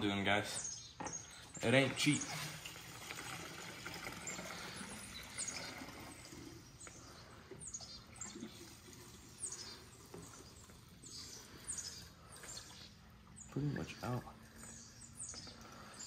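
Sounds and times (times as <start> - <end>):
fuel pouring into tank: 1.5 - 12.5.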